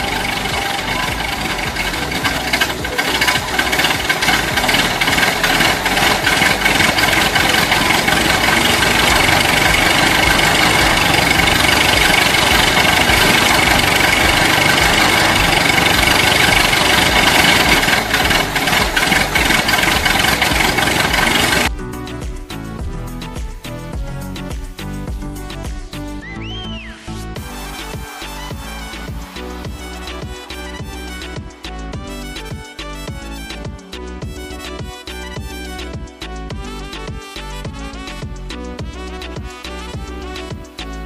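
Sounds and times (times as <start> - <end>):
diesel tractor engine clattering: 0.0 - 21.7.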